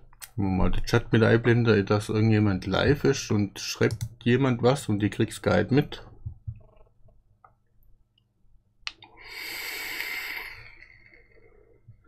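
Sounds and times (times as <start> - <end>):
airy hiss of vaping: 9.2 - 10.9.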